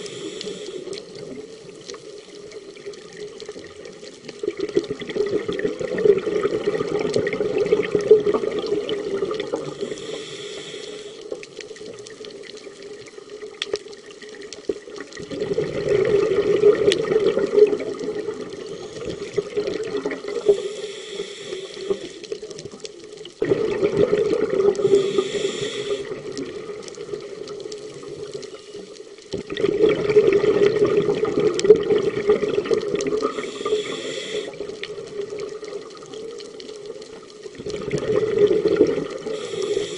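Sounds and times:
hissing regulator inhalations: 0.0s - 1.4s, 9.6s - 11.6s, 20.2s - 22.5s, 24.7s - 26.3s, 33.2s - 34.9s, 39.1s - 39.9s
bubbling exhalations underwater: 4.4s - 9.8s, 15.2s - 20.6s, 23.4s - 28.1s, 29.3s - 36.1s, 37.5s - 39.9s.

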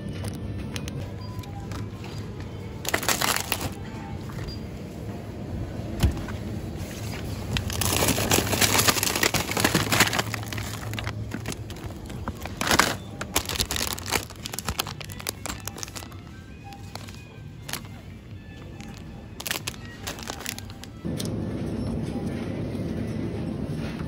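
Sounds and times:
plastic packaging crinkling: 2.8s - 3.8s, 7.2s - 21.0s.

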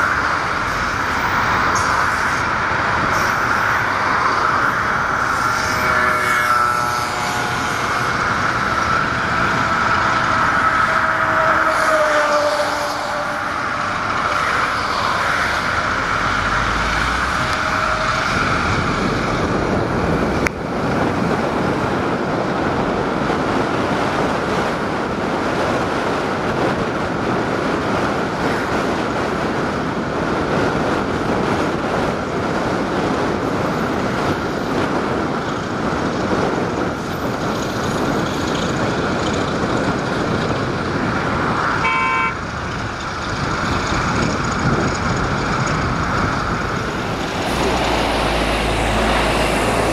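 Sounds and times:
freight train rolling past: 0.0s - 41.8s, 42.4s - 49.9s
train horn toot: 5.4s - 8.2s, 10.5s - 15.0s, 17.4s - 18.8s, 41.8s - 42.4s.

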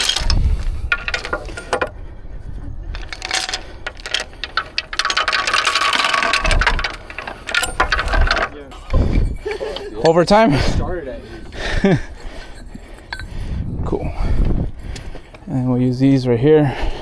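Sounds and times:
steel chain clinking and rattling: 0.0s - 2.0s, 2.8s - 10.2s, 11.2s - 13.4s
low thuds: 7.8s - 9.5s.

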